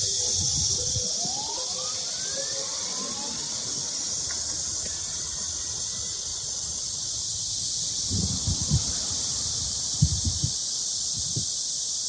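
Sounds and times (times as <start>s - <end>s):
electric vehicle whine rising: 0.0s - 10.6s
insects buzzing high-pitched: 0.0s - 12.0s.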